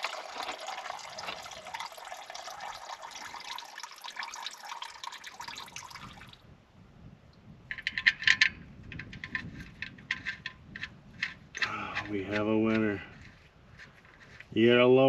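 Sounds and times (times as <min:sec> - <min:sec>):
oil pouring into bucket: 0:00.0 - 0:06.4.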